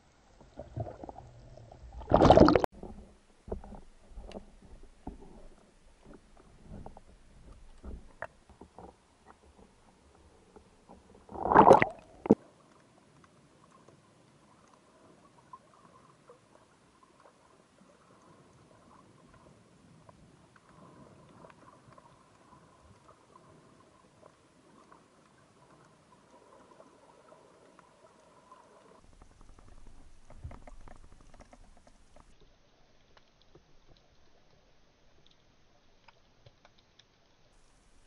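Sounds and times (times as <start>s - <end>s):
underwater crackling clicks: 29.1s - 37.8s.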